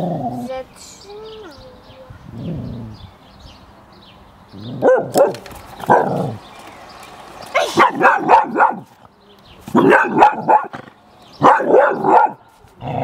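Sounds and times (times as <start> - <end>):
dog barking: 4.8 - 6.3, 7.8 - 8.9, 9.7 - 10.8, 11.4 - 12.4.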